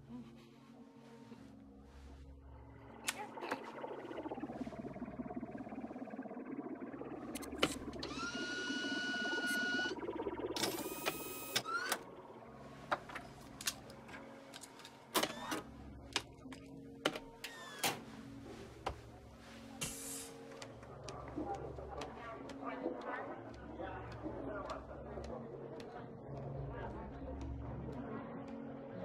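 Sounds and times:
low steady hum: 0:01.2 - 0:14.4
sweeping tone: 0:02.4 - 0:13.4
electronic whir: 0:03.0 - 0:12.2.

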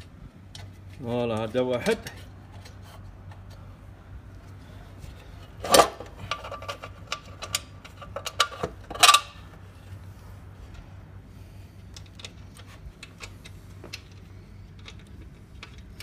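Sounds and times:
steady low hum: 0:00.0 - 0:16.0
metal bolt clicking and scraping: 0:05.1 - 0:09.5.

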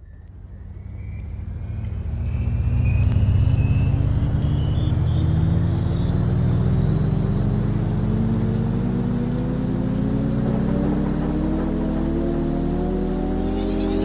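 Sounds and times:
low drone: 0:00.0 - 0:14.0
rising pitched sweep: 0:05.2 - 0:14.0.

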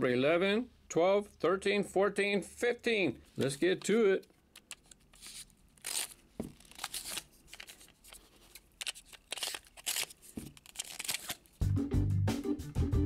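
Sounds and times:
packaging crinkling and rustling: 0:03.4 - 0:11.6
music: 0:11.6 - 0:13.0.

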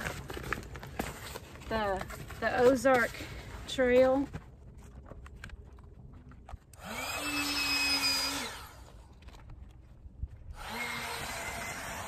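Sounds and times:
electric air pump whining: 0:06.7 - 0:09.0, 0:10.5 - 0:12.0.

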